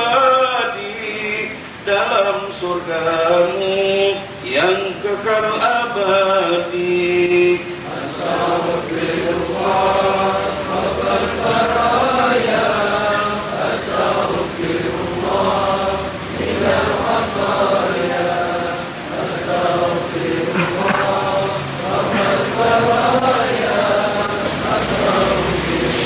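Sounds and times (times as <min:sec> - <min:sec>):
man chanting into microphone: 0:00.0 - 0:14.5
voices chanting in unison: 0:00.0 - 0:26.0.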